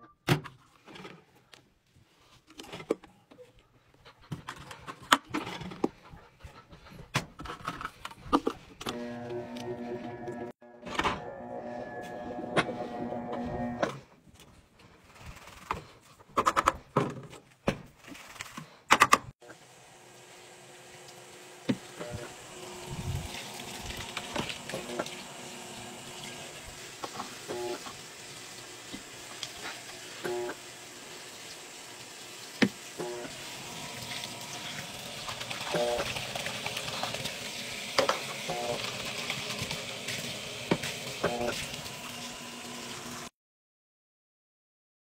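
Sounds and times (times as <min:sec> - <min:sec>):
water running into washing machine: 0:19.5 - 0:43.3.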